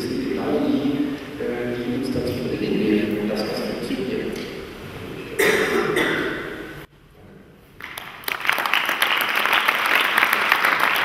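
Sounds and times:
man's voice: 0.0 - 4.4
audience applause: 7.8 - 11.0.

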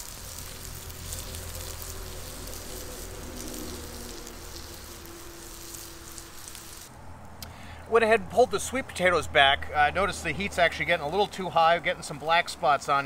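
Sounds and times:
sweet potatoes sizzling in skillet: 0.0 - 7.0.

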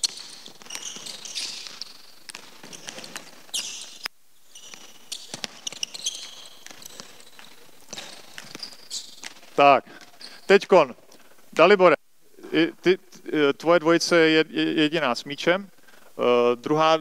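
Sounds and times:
basketball bouncing on hardwood: 0.0 - 3.9, 4.6 - 10.1
sneakers squeaking: 0.0 - 11.2.

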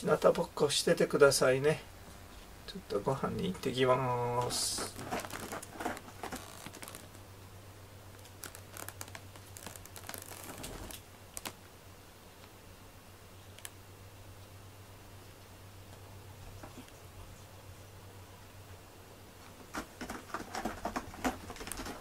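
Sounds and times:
low steady hum: 0.0 - 22.0
soft clicks and rustles: 4.3 - 7.2, 8.1 - 11.7, 13.4 - 13.8, 19.4 - 22.0.

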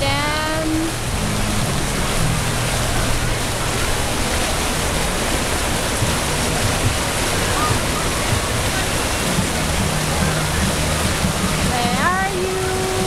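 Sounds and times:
water splashing into pool: 0.0 - 13.0.

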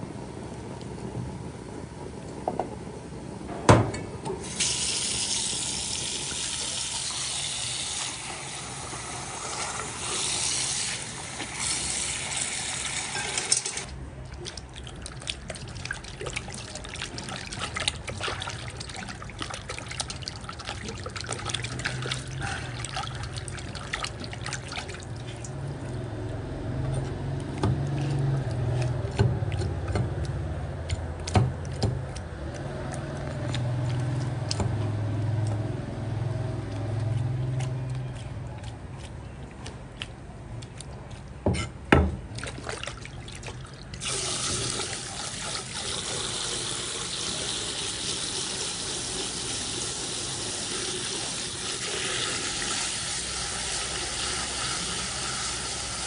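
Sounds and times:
water splashing and sloshing: 4.4 - 56.0
low steady hum: 13.4 - 46.5.

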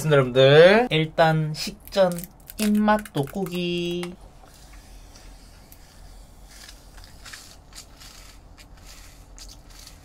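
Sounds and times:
low steady hum: 0.0 - 10.0
crunchy food being chewed: 6.5 - 10.0.

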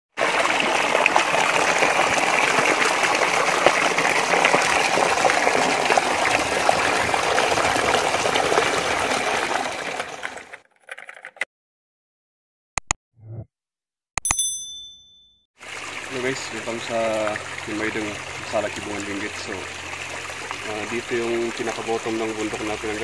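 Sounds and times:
stream rushing over rocks: 0.2 - 10.4.

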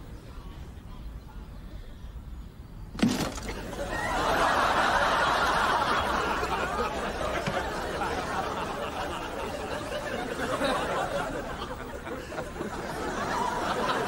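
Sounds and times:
studio audience laughter: 3.7 - 14.0.

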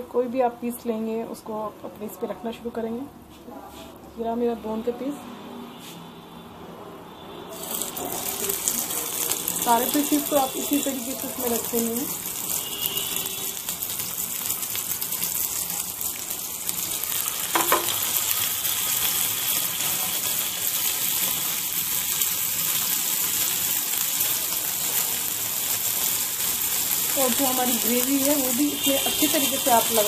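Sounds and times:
chicken sizzling on a grill pan: 7.6 - 30.0.

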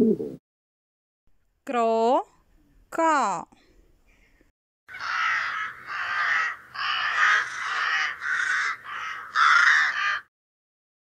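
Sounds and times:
crow cawing: 4.9 - 10.3.

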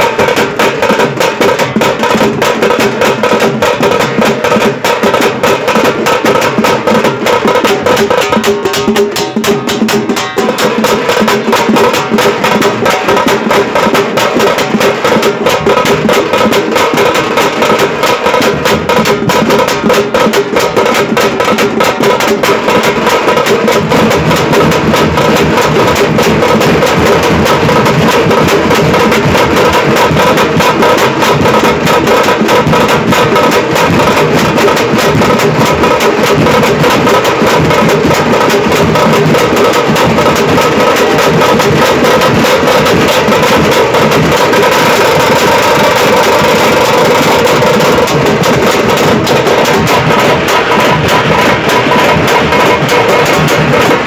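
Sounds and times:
fast loud drumming: 0.0 - 54.0.

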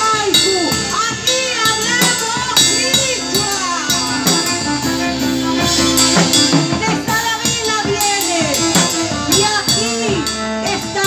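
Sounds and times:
bass drum beating: 0.0 - 11.0
drum kit with snare and cymbals: 0.0 - 11.0
person singing: 0.0 - 11.0.

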